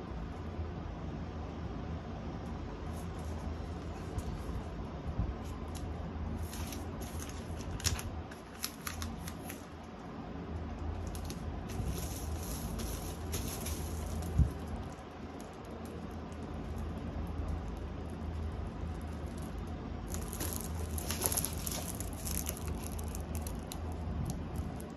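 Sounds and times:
plastic wrapping crinkling: 5.4s - 9.8s, 10.9s - 24.9s.

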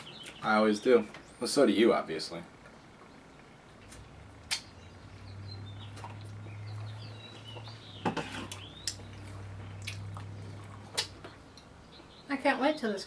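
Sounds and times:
low steady hum: 0.0s - 13.0s
wet mouth clicks and smacks: 4.4s - 4.7s, 8.8s - 9.0s, 9.7s - 11.7s.

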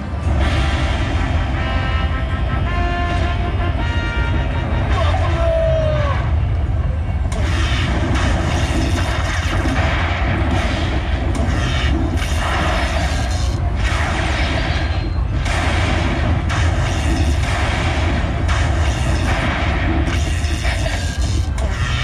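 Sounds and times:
slot machine music: 0.1s - 5.3s
thunder-like booms and crackles: 7.4s - 22.0s.

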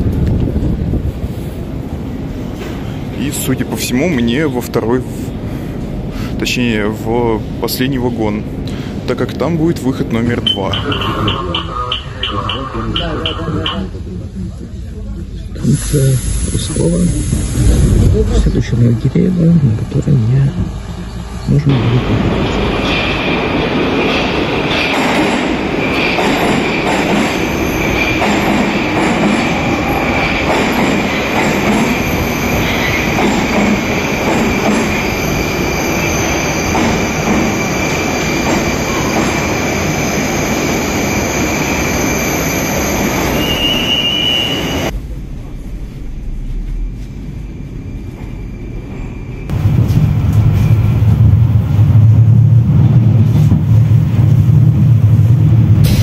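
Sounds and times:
train wheels on rails: 0.0s - 6.6s, 8.4s - 13.9s, 15.6s - 56.0s
low hum inside moving tram: 0.0s - 56.0s.

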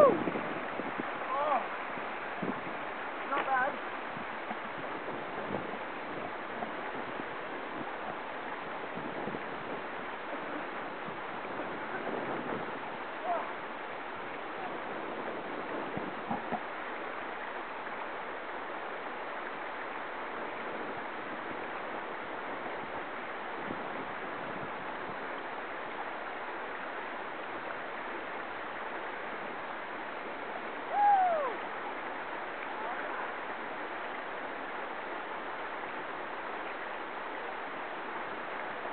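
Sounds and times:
river rapids rushing: 0.0s - 38.9s
loud shout: 30.9s - 31.6s.

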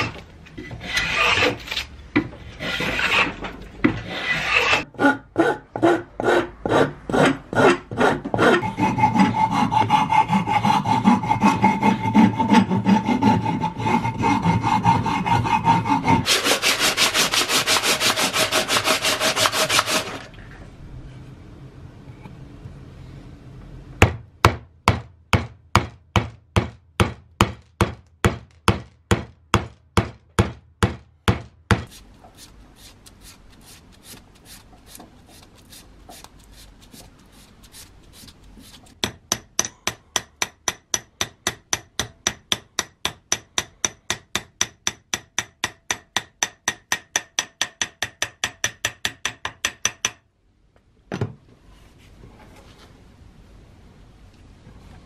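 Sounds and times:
abrasive pad scrubbing steel: 0.0s - 1.7s, 2.5s - 3.4s, 4.0s - 5.6s, 6.2s - 20.3s.

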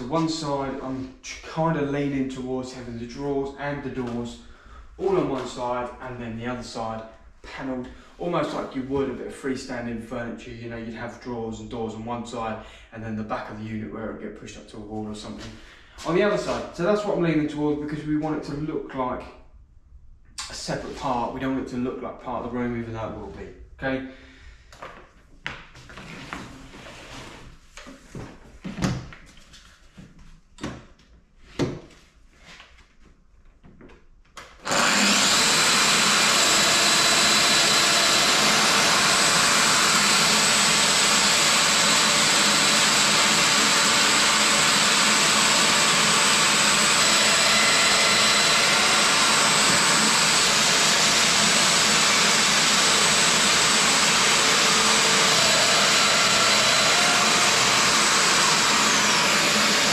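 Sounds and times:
power joiner whirring: 34.4s - 59.9s
dust extractor running: 34.6s - 59.9s.

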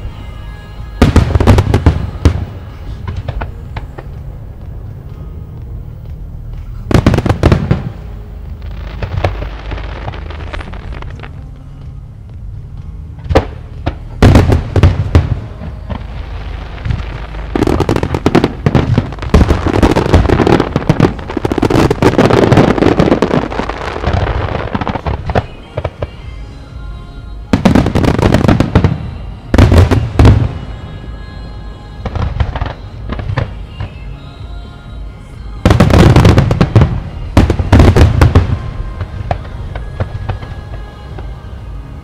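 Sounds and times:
fireworks booming and crackling: 1.0s - 4.8s, 6.8s - 11.4s, 13.2s - 26.3s, 27.5s - 30.8s, 32.0s - 34.0s, 35.6s - 41.3s.

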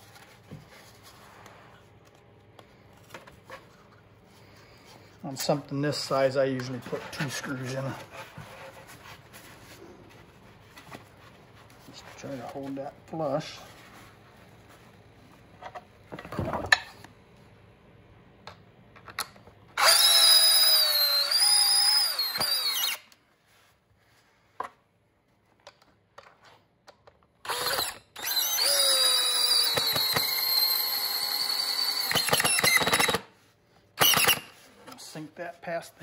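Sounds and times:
power drill whining: 19.8s - 23.2s, 27.4s - 33.3s, 34.0s - 34.6s.

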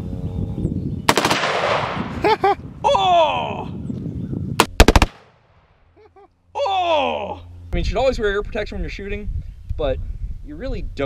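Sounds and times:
shotgun blasts with echo: 1.1s - 2.1s, 4.6s - 5.4s.

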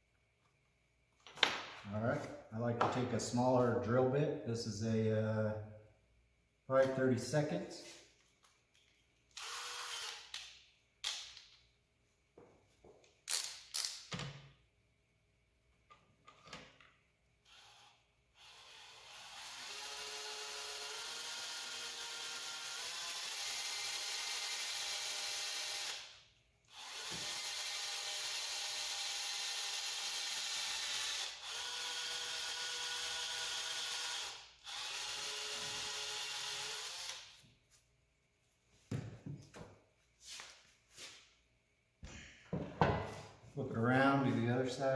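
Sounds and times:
cordless drill whining: 9.3s - 10.4s, 17.4s - 26.1s, 26.7s - 37.4s.

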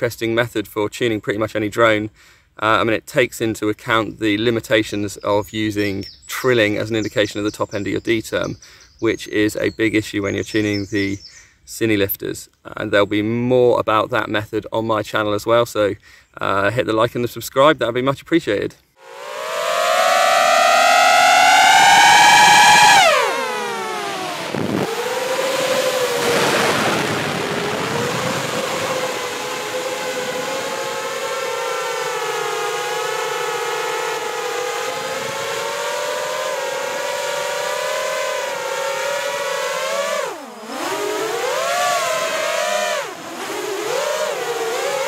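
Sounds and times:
drone motors whining: 19.0s - 45.0s.

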